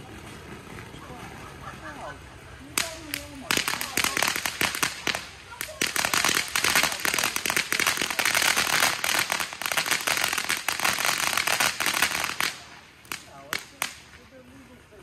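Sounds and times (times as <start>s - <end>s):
firecrackers popping: 2.6s - 14.6s.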